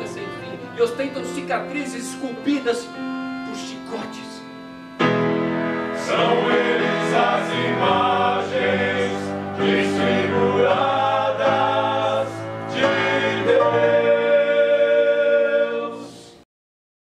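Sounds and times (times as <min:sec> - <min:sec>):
accordion: 0:00.0 - 0:16.4
piano: 0:00.0 - 0:16.4
people singing: 0:06.0 - 0:16.4.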